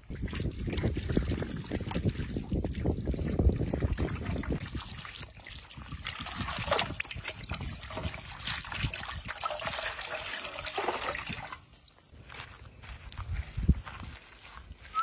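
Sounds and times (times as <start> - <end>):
water splashing and churning: 0.0 - 12.1
water pouring into a wok: 5.3 - 11.6.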